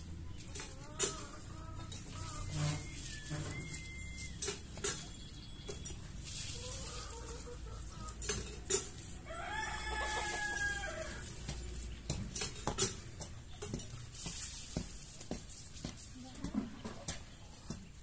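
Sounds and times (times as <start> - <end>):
rooster crowing: 9.2 - 11.3.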